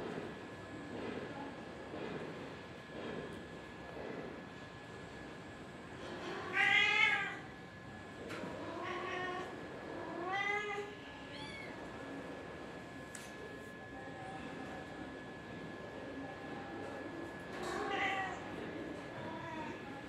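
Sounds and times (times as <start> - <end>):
cat meowing: 8.7 - 9.5, 10.1 - 11.8, 17.8 - 18.4.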